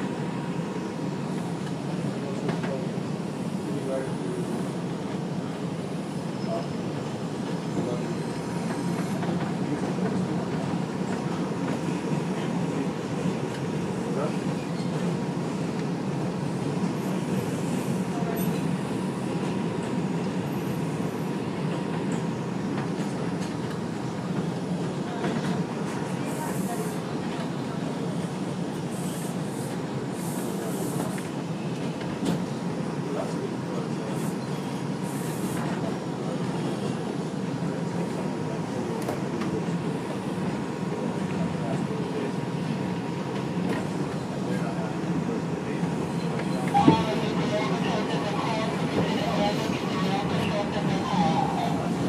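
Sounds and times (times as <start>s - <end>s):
subway wheels rumbling on rail: 0.0s - 52.0s.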